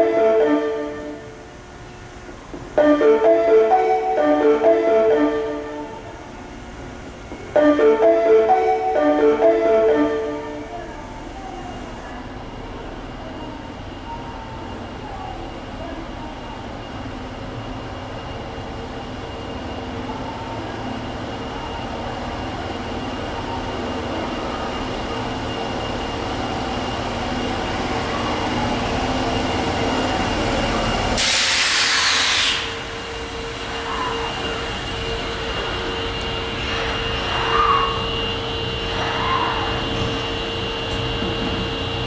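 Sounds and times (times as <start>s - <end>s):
subway train running noise: 0.0s - 42.0s
compressed air hiss: 31.2s - 33.1s.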